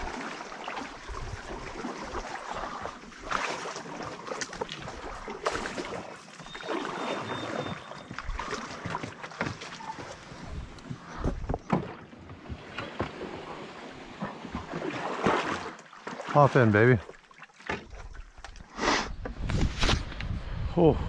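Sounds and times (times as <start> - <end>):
paddles splashing water: 0.0 - 19.2
water swishing along hull: 0.0 - 20.1.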